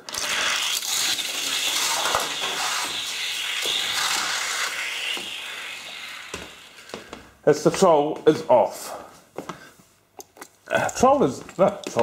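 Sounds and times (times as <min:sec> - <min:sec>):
toy car wheels rattling on track: 0:00.0 - 0:06.7.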